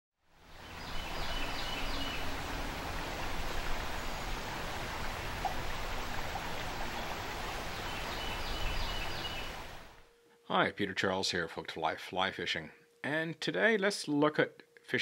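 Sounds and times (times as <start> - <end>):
river water rushing: 0.4 - 10.0.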